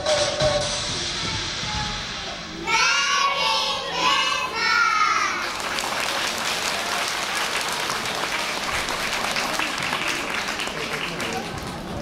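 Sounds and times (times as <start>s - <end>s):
children singing together: 2.6s - 5.6s
audience applause: 5.2s - 12.0s.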